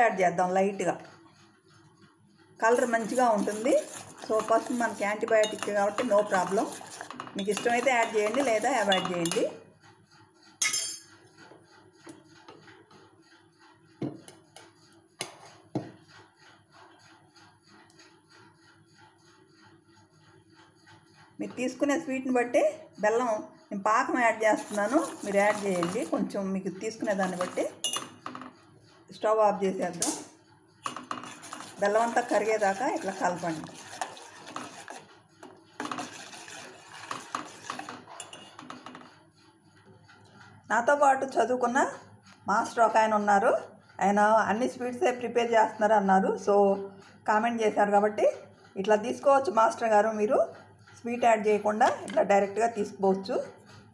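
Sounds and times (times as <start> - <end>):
milk bubbling in a pot: 2.6 - 9.7, 23.0 - 28.3, 30.8 - 39.1.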